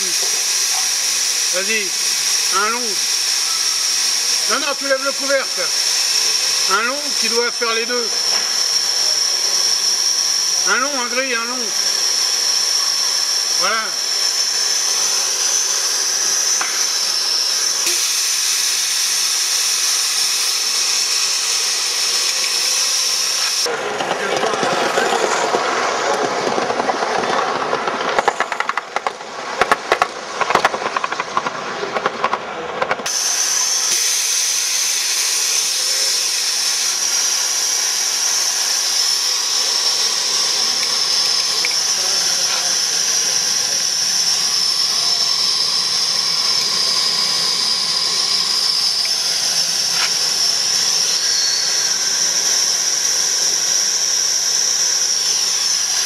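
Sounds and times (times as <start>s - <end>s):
high-pitched steam hiss: 0.0s - 23.7s, 33.1s - 56.0s
train wheels clicking on track: 23.6s - 33.1s.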